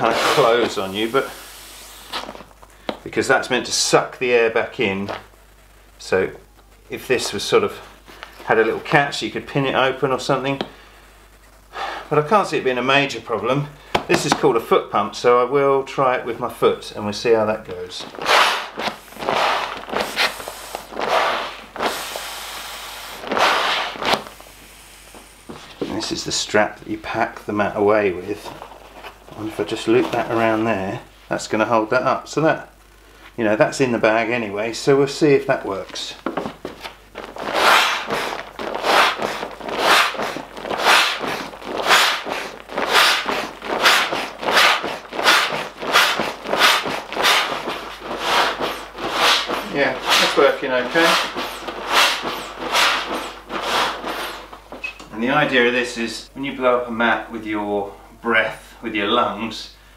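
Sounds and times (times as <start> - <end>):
nylon fabric crinkling: 0.0 - 2.8, 17.9 - 26.1, 35.7 - 55.4
foot pump air rushing: 0.0 - 3.0, 11.7 - 12.1, 13.8 - 14.4, 17.7 - 26.1, 36.2 - 55.5.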